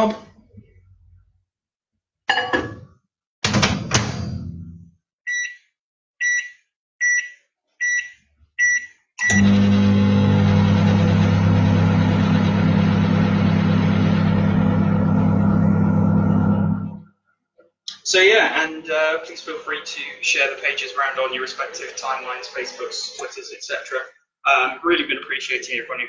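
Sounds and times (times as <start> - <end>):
microwave door knocks and rattles: 3.4 - 4.2
short keypad beeps: 5.3 - 9.5
microwave humming: 9.2 - 17.0.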